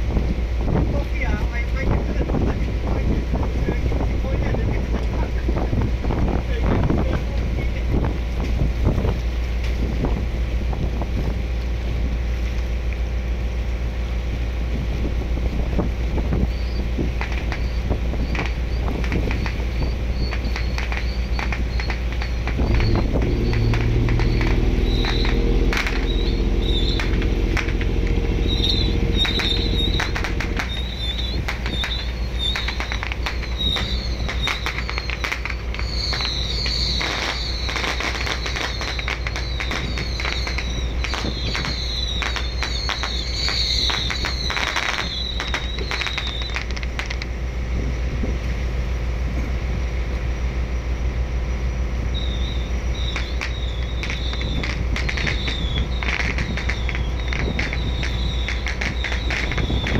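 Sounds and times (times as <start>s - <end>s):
boat engine rumble: 0.0s - 59.9s
sea noise: 0.0s - 59.9s
wind: 0.0s - 59.9s
pitched drone: 16.3s - 59.9s
sharp cracks: 17.2s - 17.7s, 18.3s - 47.3s, 53.0s - 59.9s
high chirps: 17.4s - 46.8s, 52.1s - 59.9s.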